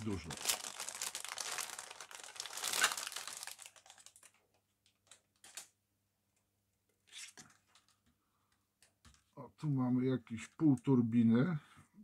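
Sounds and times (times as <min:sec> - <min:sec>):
plastic bag crinkling: 0:00.0 - 0:05.7.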